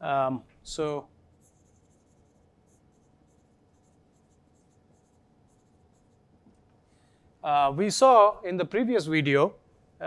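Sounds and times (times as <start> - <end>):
marker pen writing on whiteboard: 1.3 - 6.8.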